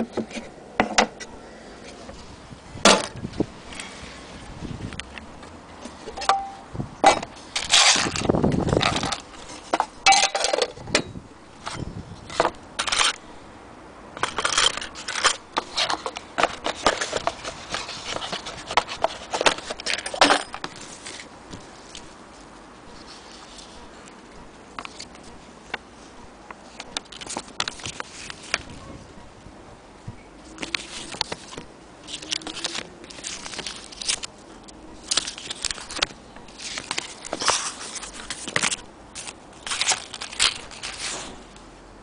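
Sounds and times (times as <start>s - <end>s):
paper rustling and scraping: 7.4s - 10.6s, 11.6s - 13.2s, 14.2s - 28.9s, 30.4s - 41.6s.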